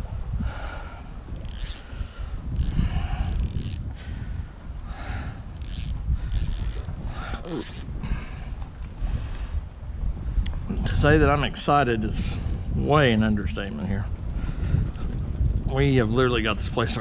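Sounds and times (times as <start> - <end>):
wind rumble on microphone: 0.0 - 17.0
fishing reel cranking whine: 1.4 - 4.0, 5.5 - 8.0, 12.3 - 12.7.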